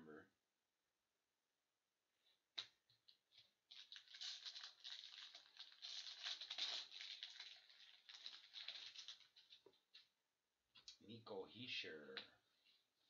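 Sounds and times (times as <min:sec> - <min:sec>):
foil wrapper tearing and crinkling: 0:03.7 - 0:09.6.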